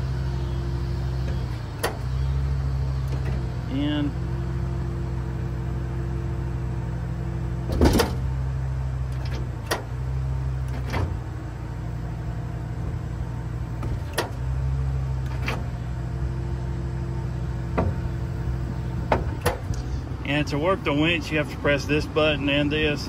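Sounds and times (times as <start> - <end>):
hydraulic system humming: 0.0 - 23.0
sharp clicks and clunks: 9.1 - 10.0, 10.6 - 11.2, 13.8 - 14.4, 19.1 - 19.9.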